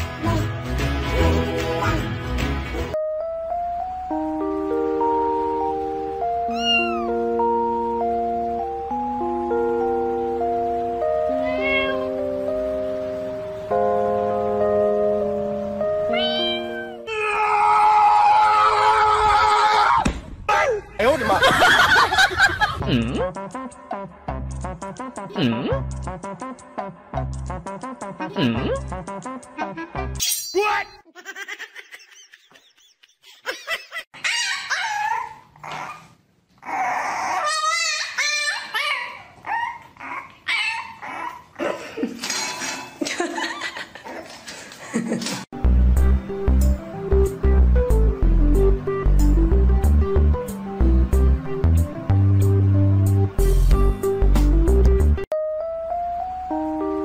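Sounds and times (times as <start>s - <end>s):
background music melody: 0.0s - 17.2s, 45.6s - 57.0s
puppies whining and yipping: 6.4s - 7.2s, 34.2s - 41.6s.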